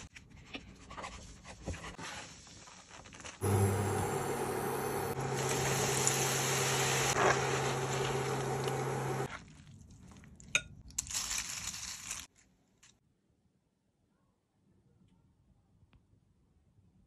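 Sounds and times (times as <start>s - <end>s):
pita deep-frying in oil: 2.1s - 12.4s
low hum: 3.4s - 9.3s
crisp rustle of chips dropping: 10.9s - 13.0s.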